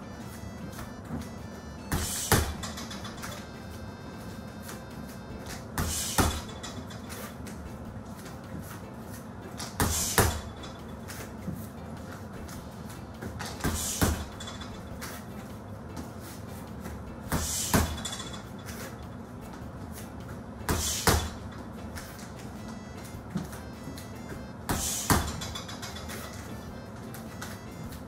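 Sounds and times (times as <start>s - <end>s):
gloved punches on heavy bag: 1.9s - 2.8s, 5.8s - 6.6s, 9.7s - 10.6s, 13.4s - 14.4s, 17.3s - 18.2s, 20.7s - 21.4s, 24.7s - 25.6s.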